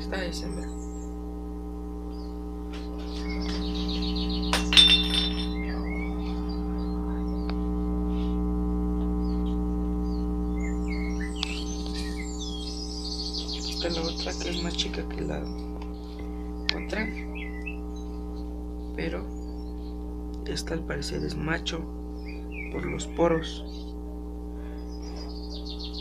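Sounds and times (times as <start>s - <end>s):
electrical mains hum: 0.0s - 26.0s
clinking clatter: 4.5s - 5.8s
faint chirps: 9.2s - 20.1s, 22.0s - 26.0s.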